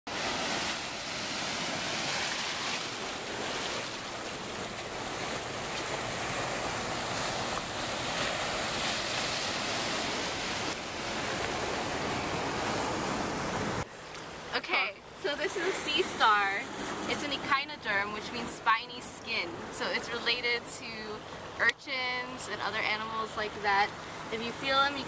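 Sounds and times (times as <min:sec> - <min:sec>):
waves breaking on rocks: 0:00.1 - 0:13.8
wind: 0:00.1 - 0:25.0.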